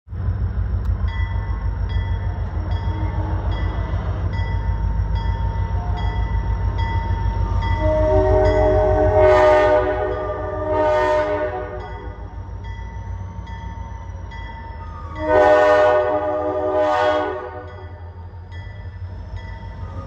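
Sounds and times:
diesel locomotive rumble: 0.1 - 20.0
crossing bell ringing: 1.0 - 20.0
locomotive air horn: 7.4 - 12.3, 15.1 - 17.9.

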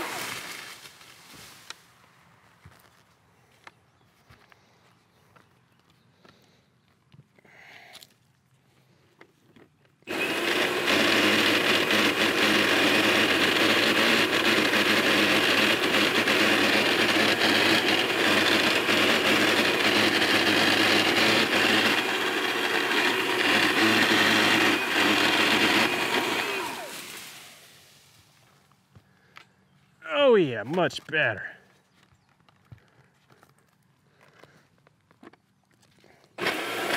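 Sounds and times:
chainsaw cutting tree limbs: 0.0 - 1.1, 10.1 - 27.8, 36.3 - 36.9.

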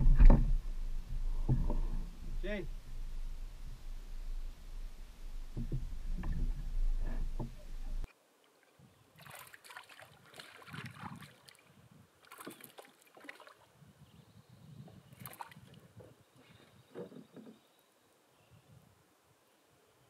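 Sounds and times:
canoe paddle strokes in water: 0.0 - 8.1, 9.2 - 11.6
water lapping at canoe hull: 0.0 - 13.8, 14.9 - 17.7.

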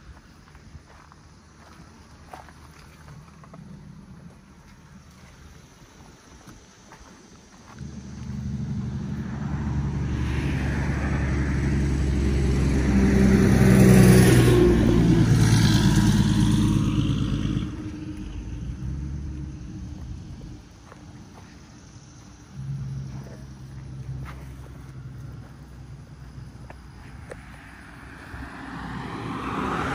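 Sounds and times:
vehicle driving past: 7.8 - 20.8, 21.8 - 29.9.

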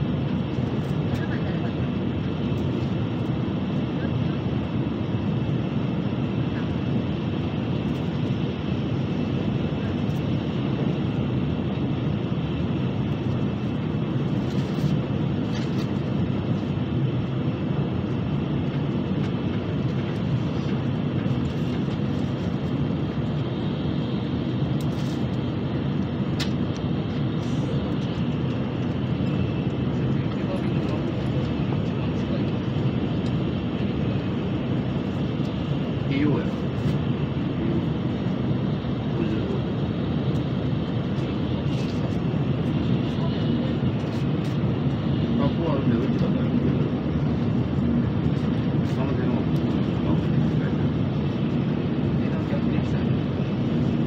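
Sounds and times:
train rumble inside cabin: 0.0 - 3.3.

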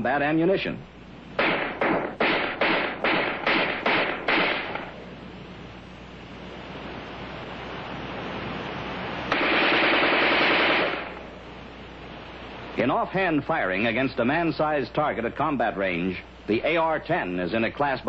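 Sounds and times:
loud sustained noise burst: 1.1 - 14.8
rifle shots: 1.4 - 5.0, 9.3 - 11.3.

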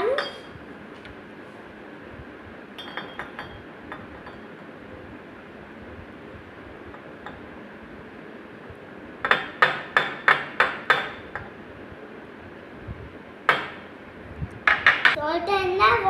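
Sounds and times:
glass lid clinking on jar: 2.8 - 3.6.

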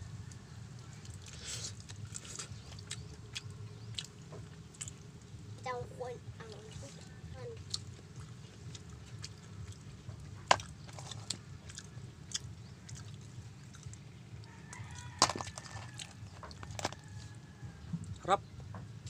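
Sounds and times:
steady low hum: 0.0 - 19.0
chewing and picking: 0.2 - 19.0
crab shell cracking: 14.7 - 17.3.

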